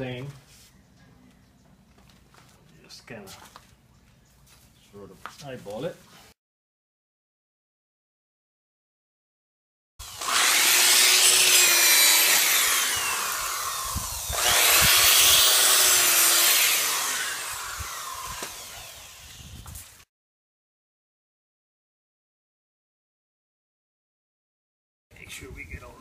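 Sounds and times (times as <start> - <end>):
hammer drill boring into soil: 10.0 - 19.9.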